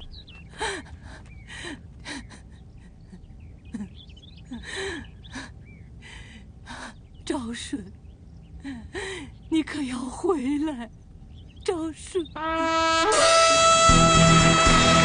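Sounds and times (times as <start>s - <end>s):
woman sobbing: 0.6s - 5.6s.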